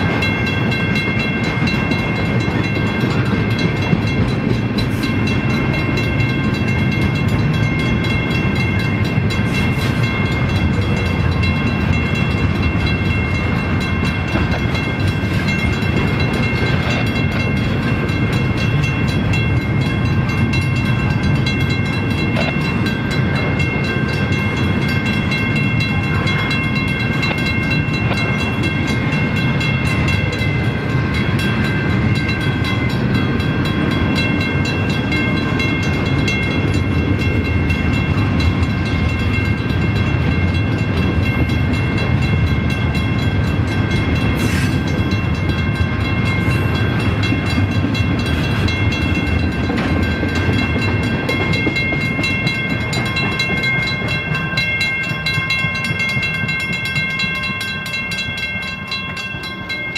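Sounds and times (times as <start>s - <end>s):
crossing bell ringing: 0.0s - 59.9s
freight train rumbling and rattling: 0.0s - 59.9s.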